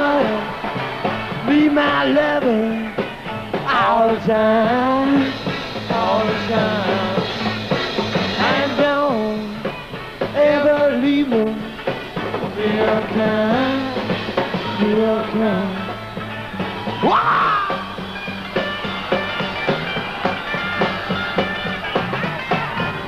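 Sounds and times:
man singing into microphone: 0:00.0 - 0:00.6, 0:01.4 - 0:03.0, 0:03.6 - 0:07.4, 0:08.4 - 0:09.6, 0:10.4 - 0:11.8, 0:12.4 - 0:15.9
electric guitar: 0:00.0 - 0:23.0
rock band playing: 0:00.0 - 0:23.0.

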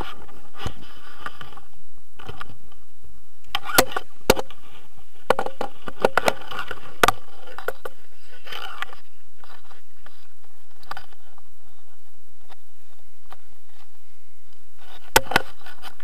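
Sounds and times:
sharp clicks and knocks: 0:05.3 - 0:08.0.

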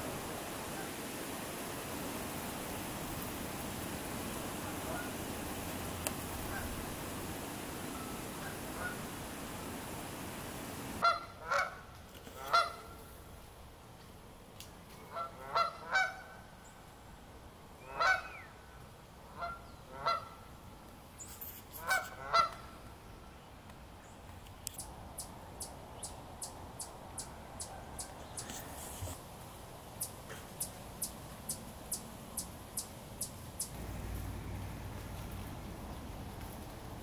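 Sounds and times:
geese honking: 0:04.6 - 0:05.2, 0:06.4 - 0:06.8, 0:07.9 - 0:09.1, 0:11.0 - 0:11.8, 0:12.4 - 0:12.9, 0:15.1 - 0:16.3, 0:17.9 - 0:18.4, 0:19.3 - 0:20.4, 0:21.8 - 0:22.7.

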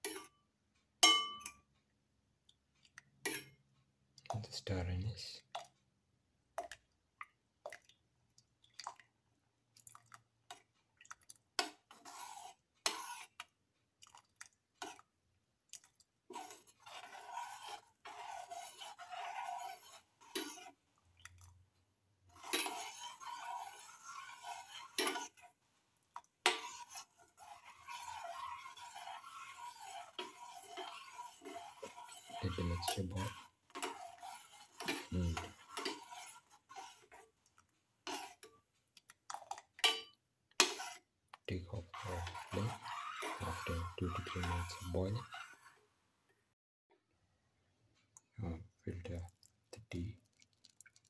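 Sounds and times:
spoon clinking against pan: 0:01.0 - 0:01.7, 0:39.8 - 0:40.8
spoon scraping and swishing: 0:09.8 - 0:15.1, 0:15.7 - 0:21.6, 0:22.3 - 0:45.9, 0:49.2 - 0:51.0.

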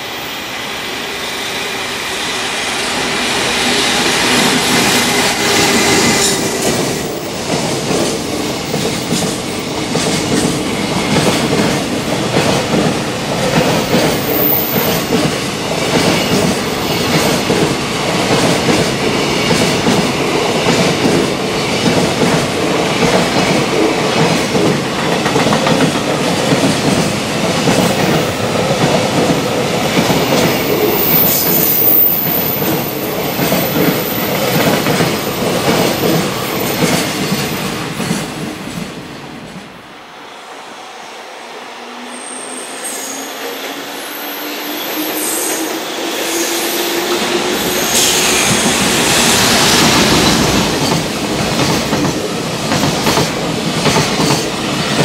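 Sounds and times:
train wheels rumbling on rail: 0:00.0 - 0:40.1, 0:43.4 - 0:55.0.

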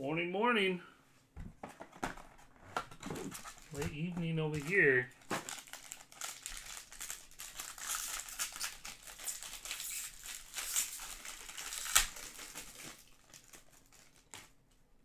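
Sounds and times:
foil wrapper tearing and crinkling: 0:03.3 - 0:14.5.

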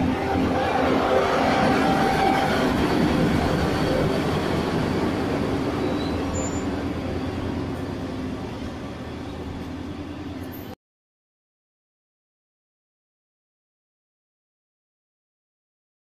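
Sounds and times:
train passing: 0:00.0 - 0:10.8.

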